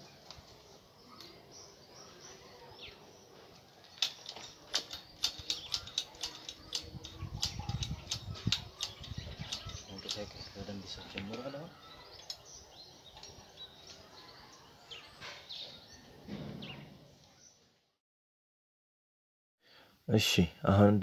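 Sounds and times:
bicycle brakes clicking and rattling: 0:03.8 - 0:11.6.

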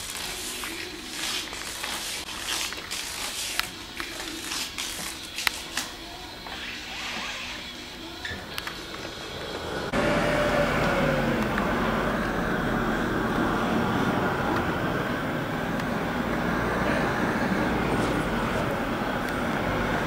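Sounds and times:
road traffic noise: 0:08.0 - 0:20.0.

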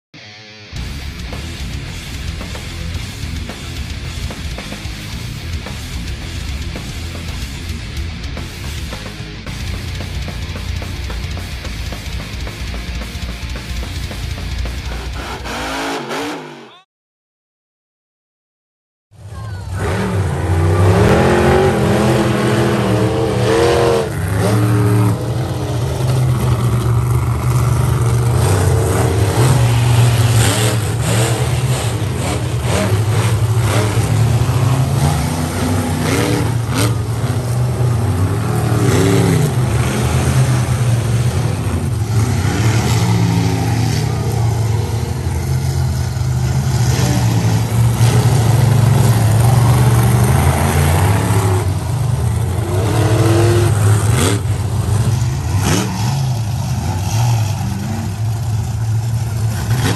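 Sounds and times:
music: 0:00.2 - 0:15.8
monster truck engines revving: 0:00.7 - 0:16.8, 0:19.2 - 0:59.9.

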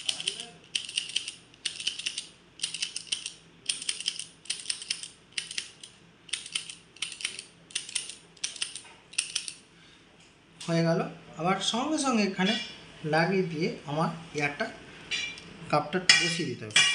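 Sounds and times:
lancing pen clicking: 0:00.0 - 0:09.6.

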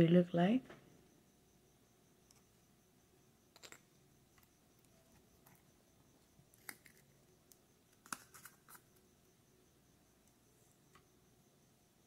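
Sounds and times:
small jars clicking and tapping: 0:03.5 - 0:05.6.

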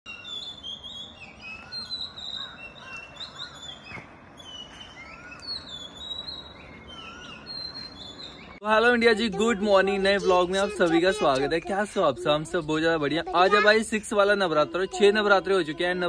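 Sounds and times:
birds chirping and whistling: 0:00.1 - 0:08.6.

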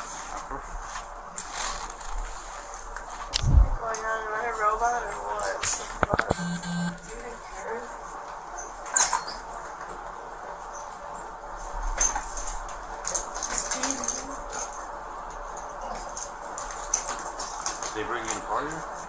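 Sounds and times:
rustling and scraping: 0:00.0 - 0:04.2
low room hum: 0:00.0 - 0:19.0.

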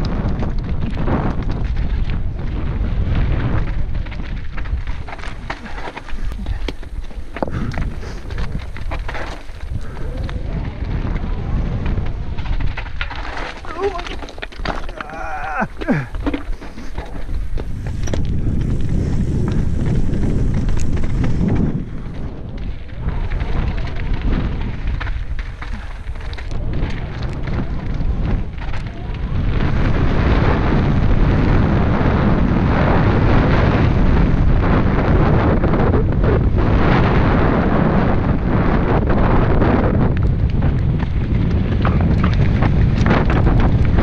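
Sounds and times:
mountain bike rattling: 0:00.0 - 0:44.0
wind rush on microphone: 0:00.0 - 0:44.0
tyres crunching over stones: 0:00.1 - 0:31.0, 0:40.1 - 0:44.0.

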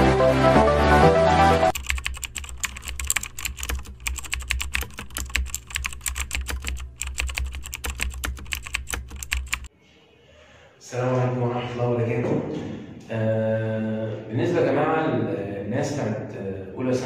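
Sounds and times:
electronic music: 0:00.0 - 0:01.8
computer keyboard typing: 0:01.7 - 0:09.7.

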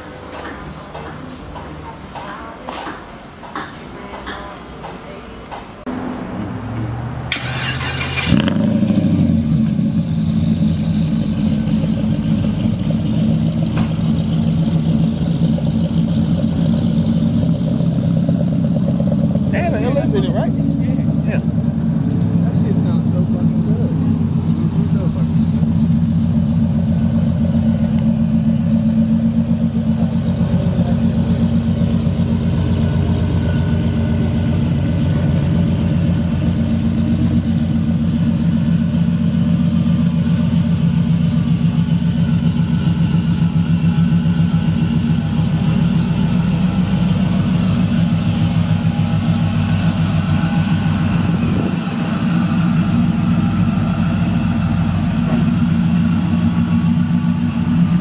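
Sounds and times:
pickup truck engine passing: 0:05.8 - 0:58.0.

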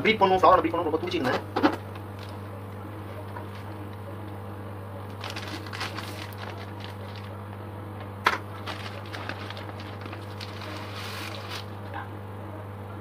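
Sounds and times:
steady low hum: 0:00.0 - 0:13.0
paper and plastic crinkling: 0:02.0 - 0:02.4, 0:03.2 - 0:04.0, 0:05.1 - 0:07.4, 0:08.3 - 0:12.0.

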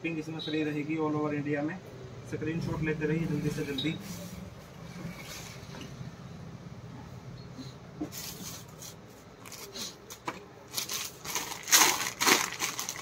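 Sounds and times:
low hum: 0:01.9 - 0:07.8.

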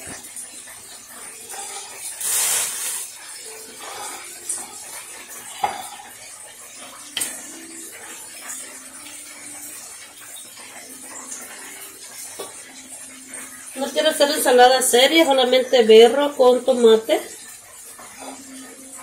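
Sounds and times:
dishes and utensils clinking: 0:01.2 - 0:13.0.

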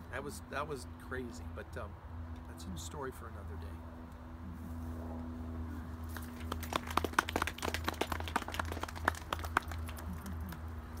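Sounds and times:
steady low hum: 0:00.0 - 0:11.0
audience clapping: 0:06.1 - 0:10.7.

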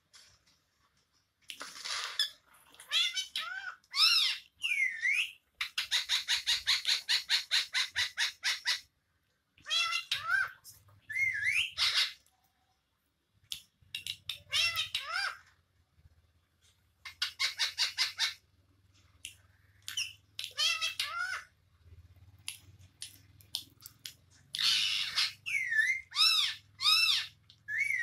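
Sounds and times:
parrot chirps: 0:01.8 - 0:08.9, 0:09.6 - 0:12.3, 0:13.9 - 0:15.4, 0:17.0 - 0:18.4, 0:19.2 - 0:21.5, 0:22.5 - 0:28.0
parrot squawks: 0:02.9 - 0:08.9, 0:09.6 - 0:12.2, 0:14.4 - 0:15.4, 0:17.0 - 0:18.4, 0:19.9 - 0:21.5, 0:24.6 - 0:28.0.

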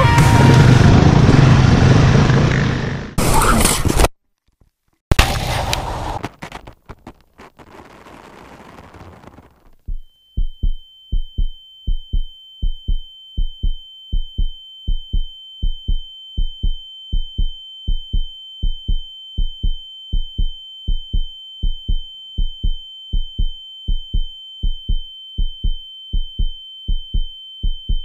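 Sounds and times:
heartbeat thumps: 0:09.8 - 0:28.0
high-pitched ringing tone: 0:09.8 - 0:28.0.

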